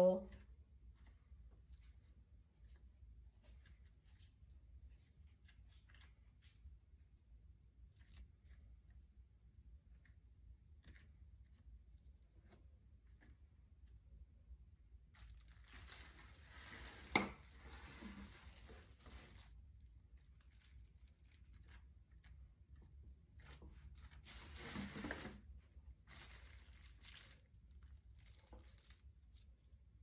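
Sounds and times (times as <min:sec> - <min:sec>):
plastic sheeting crinkling: 0:03.4 - 0:06.5, 0:07.9 - 0:08.7, 0:15.1 - 0:30.0.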